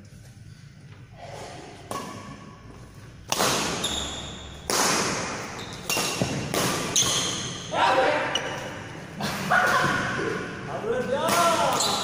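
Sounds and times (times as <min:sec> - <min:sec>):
racket hitting shuttlecock: 0:01.9 - 0:02.5, 0:03.2 - 0:07.6.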